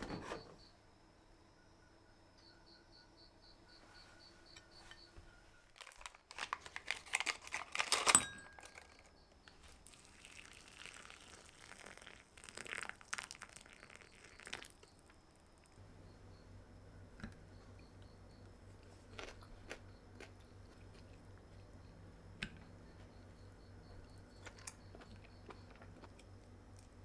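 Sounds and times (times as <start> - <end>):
packaging crinkling and tearing: 5.7 - 9.1
hot water pouring into cup: 9.6 - 15.7.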